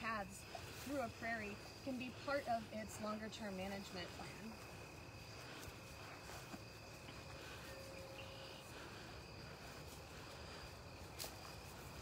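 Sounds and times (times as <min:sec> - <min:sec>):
crickets trilling: 0:00.0 - 0:12.0.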